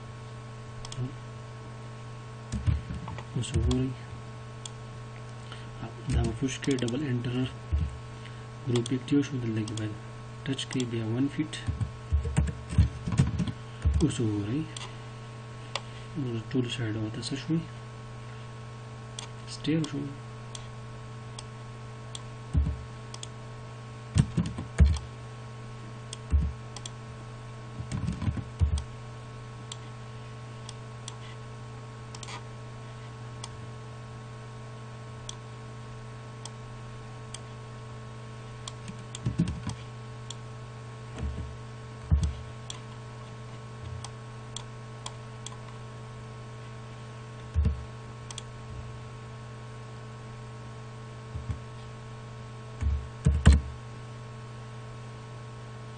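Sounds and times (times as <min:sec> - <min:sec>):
electrical hum: 0:00.0 - 0:55.9
computer mouse clicks: 0:08.7 - 0:09.0, 0:22.2 - 0:23.3, 0:26.1 - 0:27.0, 0:48.3 - 0:48.5.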